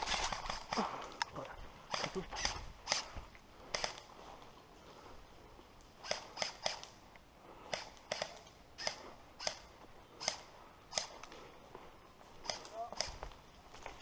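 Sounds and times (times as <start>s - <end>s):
footsteps crunching dry leaves: 0.0s - 1.2s.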